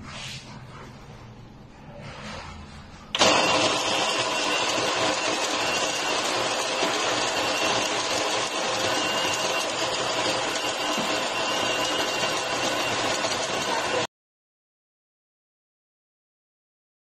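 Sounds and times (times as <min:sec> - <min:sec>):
electric coffee grinder whirring: 0:03.2 - 0:14.1.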